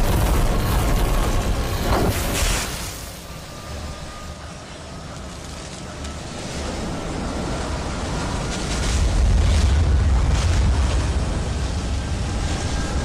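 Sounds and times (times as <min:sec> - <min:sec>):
deep spaceship rumble: 0:06.8 - 0:13.0.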